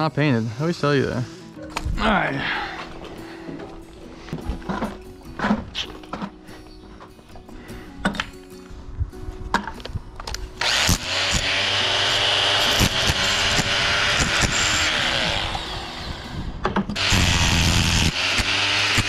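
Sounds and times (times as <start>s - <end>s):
rotary hammer chipping stucco: 10.6s - 15.7s, 16.8s - 19.0s.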